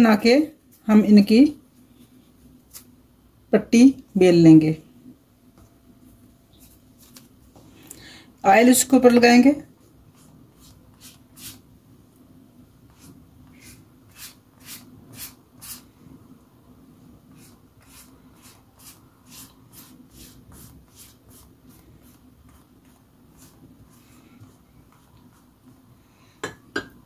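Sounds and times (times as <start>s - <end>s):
pastry brush strokes on dough: 9.7s - 11.7s, 12.8s - 16.0s, 17.2s - 26.2s.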